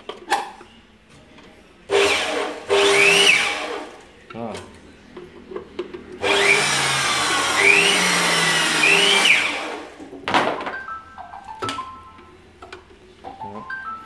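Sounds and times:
power tool electric motor running: 0:01.9 - 0:03.9, 0:06.2 - 0:09.9.

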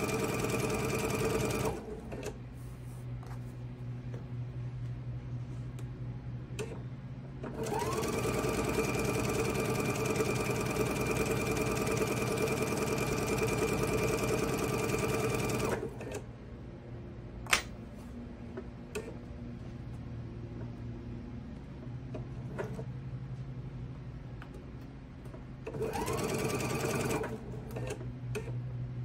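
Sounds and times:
sewing machine motor whirring: 0:00.0 - 0:02.4, 0:07.5 - 0:16.2, 0:25.7 - 0:28.5.

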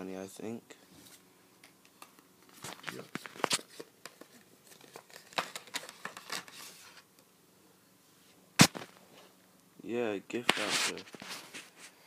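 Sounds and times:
paper rustling and crinkling: 0:02.4 - 0:07.0, 0:10.5 - 0:12.0.

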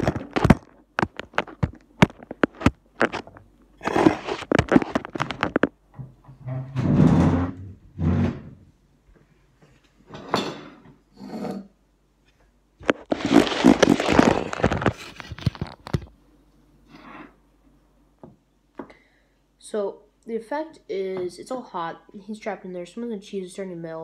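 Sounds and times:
wooden chair scraping on floor: 0:03.0 - 0:05.7, 0:06.4 - 0:08.6.

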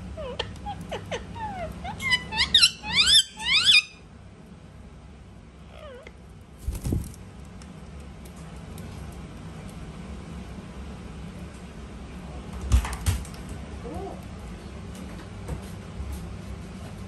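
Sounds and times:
parakeets chirping and squawking: 0:00.2 - 0:04.0.

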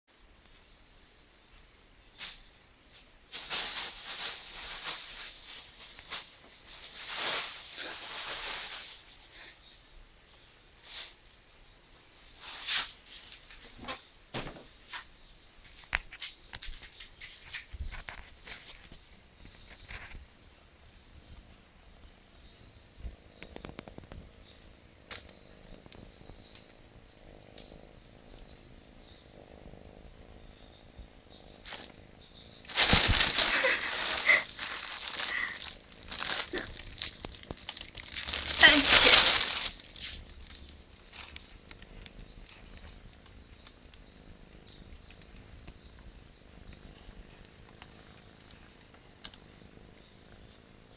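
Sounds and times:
plastic bag crinkling: 0:32.6 - 0:42.9.

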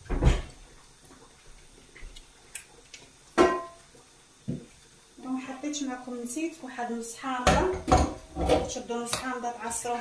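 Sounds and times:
utensil knocking on steel pot: 0:07.4 - 0:09.3.

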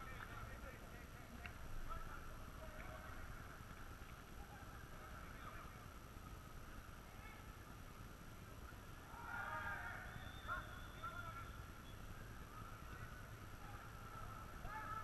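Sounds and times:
distant players shouting: 0:09.0 - 0:15.0.

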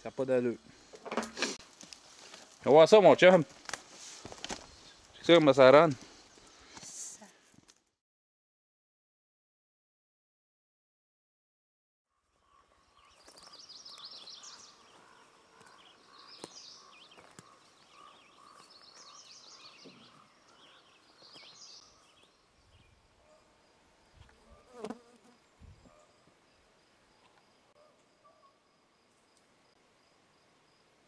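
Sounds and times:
insect buzz: 0:22.7 - 0:30.9.

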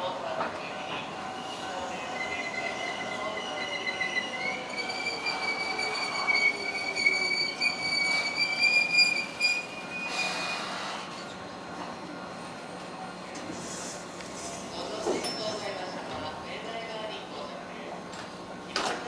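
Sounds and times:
train wheel and brake squeal: 0:01.3 - 0:11.4.

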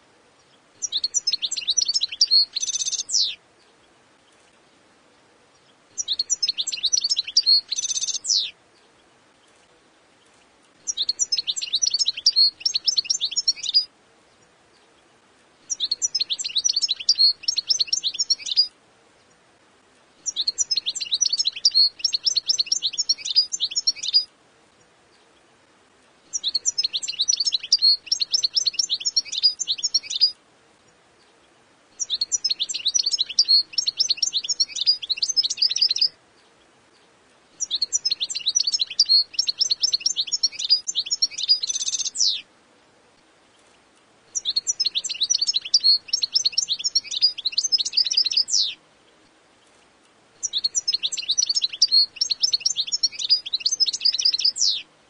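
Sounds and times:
goldfinch twittering song: 0:00.4 - 0:04.8, 0:05.6 - 0:19.4, 0:20.2 - 0:24.3, 0:26.3 - 0:30.4, 0:31.2 - 0:42.5, 0:43.6 - 0:48.8, 0:49.6 - 0:54.9.

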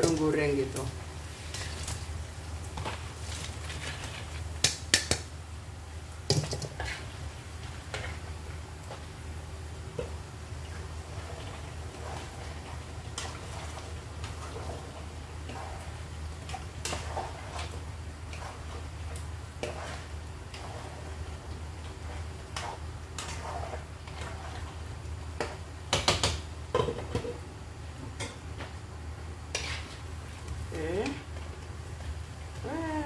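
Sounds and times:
food frying in oil: 0:00.0 - 0:33.0
utensil scraping a frying pan: 0:11.0 - 0:25.6, 0:29.5 - 0:30.1.

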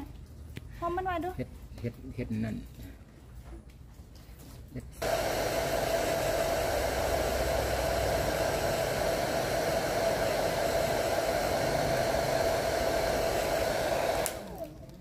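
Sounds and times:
hair dryer running: 0:05.0 - 0:14.8.

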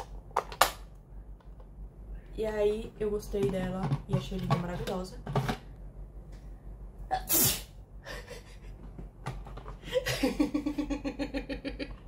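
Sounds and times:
woman laughing: 0:08.0 - 0:08.8, 0:09.8 - 0:12.0.

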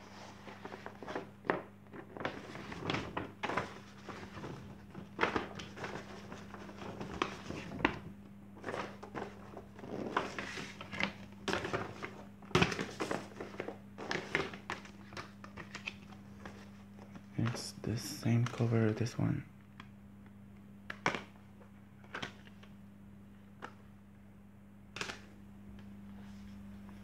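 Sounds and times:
paper rustling and crinkling: 0:00.0 - 0:17.7
faint low hum: 0:00.0 - 0:27.0.

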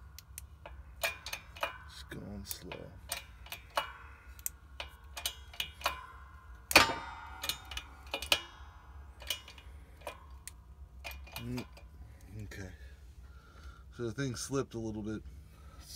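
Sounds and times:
metallic ticks and clicks: 0:00.0 - 0:12.6
loud ringing metallic crack: 0:00.1 - 0:11.5.

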